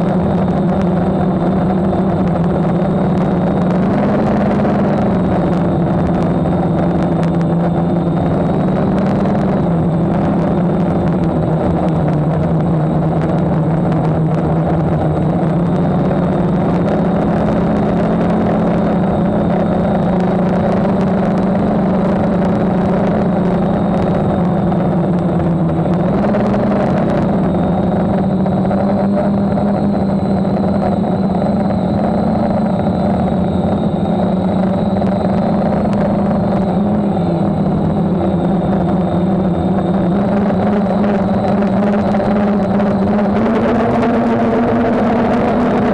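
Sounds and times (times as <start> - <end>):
drone motors and propellers whirring: 0.0 - 45.9
high motor whine: 0.0 - 45.9.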